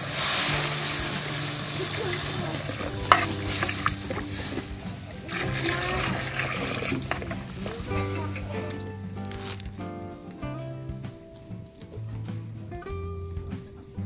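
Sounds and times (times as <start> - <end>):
water pouring into broth: 0.0 - 8.3.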